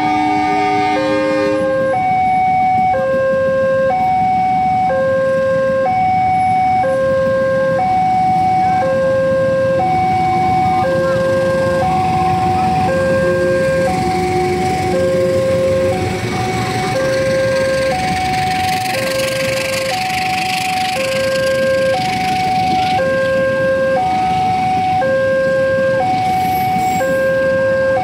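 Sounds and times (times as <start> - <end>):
chord of horn-like tones: 0.0 - 1.8
level crossing two-tone alarm: 0.0 - 28.0
train running: 0.0 - 28.0
motorcycle engines idling: 0.1 - 28.0.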